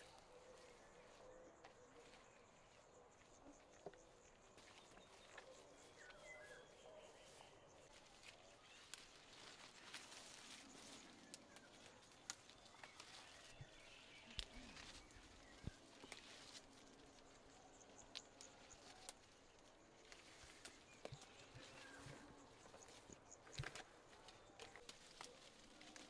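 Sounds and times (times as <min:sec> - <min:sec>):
foliage rustling: 0:04.5 - 0:26.0
leaf stems snapping: 0:08.8 - 0:13.6, 0:14.3 - 0:16.8, 0:23.4 - 0:26.0.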